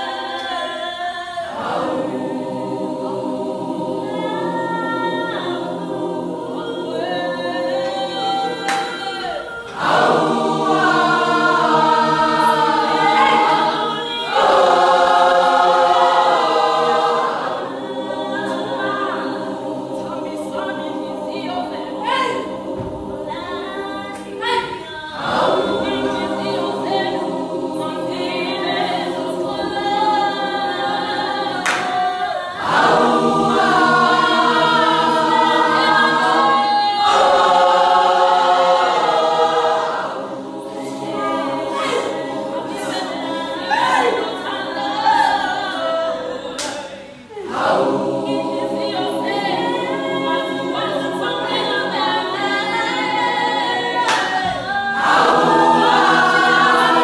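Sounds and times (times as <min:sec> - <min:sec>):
women's choir singing a cappella: 0:00.0 - 0:57.0.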